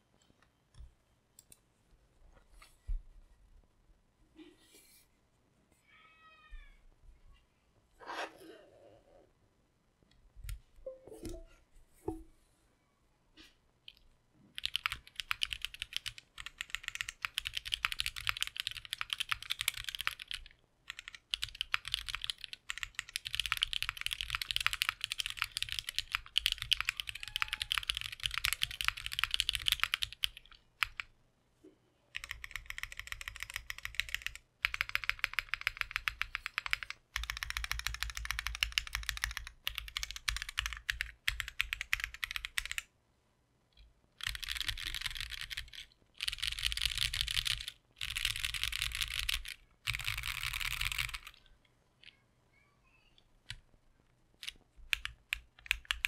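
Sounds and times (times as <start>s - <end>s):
mechanical keyboard typing: 14.6s - 31.1s, 32.2s - 42.9s, 44.2s - 51.4s, 54.4s - 56.0s.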